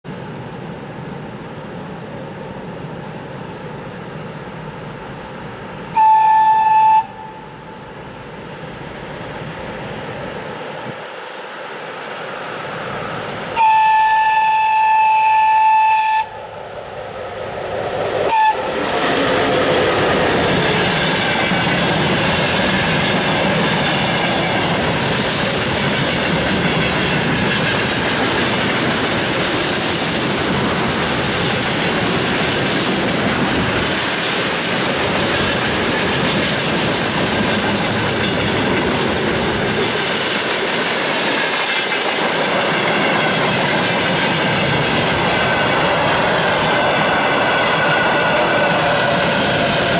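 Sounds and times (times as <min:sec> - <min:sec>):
train wheels on rails: 0:00.1 - 0:49.9
locomotive horn blast: 0:05.9 - 0:07.6, 0:13.5 - 0:16.4, 0:18.3 - 0:18.7.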